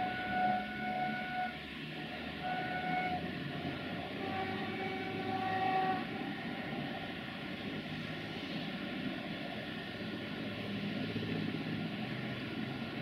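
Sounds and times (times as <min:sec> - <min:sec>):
locomotive horn blasts: 0:00.0 - 0:01.6, 0:02.4 - 0:03.3, 0:04.1 - 0:06.2
low train rumble: 0:00.0 - 0:13.0.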